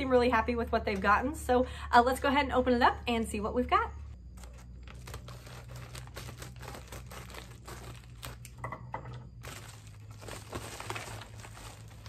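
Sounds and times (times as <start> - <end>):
plastic mailer crinkling: 4.3 - 8.6, 9.3 - 12.0
scissors cutting plastic: 4.4 - 8.6.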